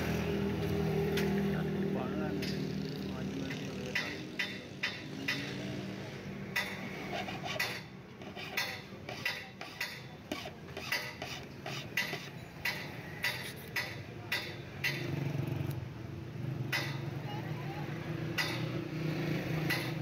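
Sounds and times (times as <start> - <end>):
hand file rasping on metal key: 6.6 - 14.0.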